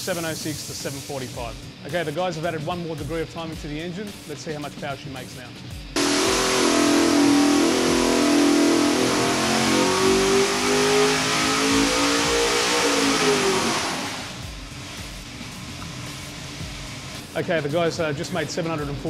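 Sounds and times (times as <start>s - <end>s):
engine revving under load: 6.0s - 14.6s.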